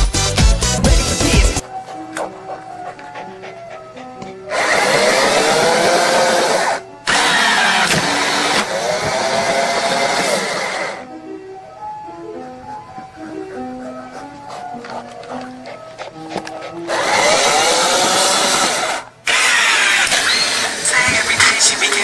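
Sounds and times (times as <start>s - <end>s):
background music: 0.0s - 22.0s
loud motor-like whirring: 4.5s - 11.0s, 16.9s - 22.0s.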